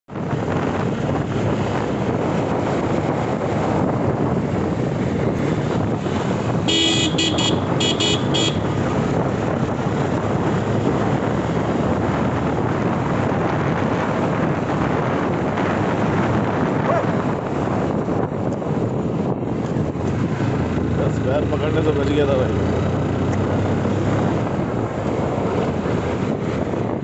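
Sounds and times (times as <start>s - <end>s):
motorbike road noise: 0.0s - 27.0s
wind buffeting microphone: 0.1s - 27.0s
vehicle horn short toots: 6.6s - 8.7s.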